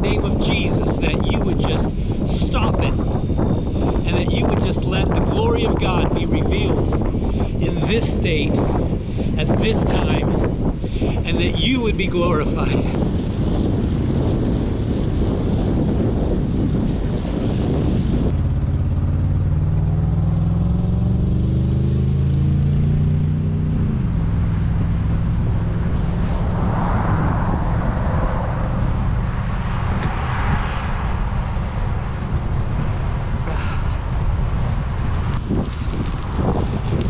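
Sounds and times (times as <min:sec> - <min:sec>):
rush of traffic: 0:00.0 - 0:11.8, 0:12.7 - 0:37.0
wind rumbling on microphone: 0:00.0 - 0:37.0
vehicle engine speeding up: 0:12.6 - 0:37.0.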